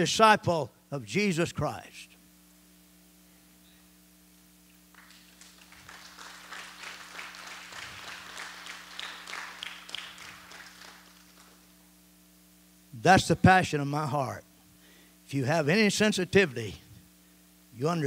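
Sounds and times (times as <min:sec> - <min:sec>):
low electrical hum: 0:00.0 - 0:18.0
congregation applauding: 0:04.9 - 0:11.7.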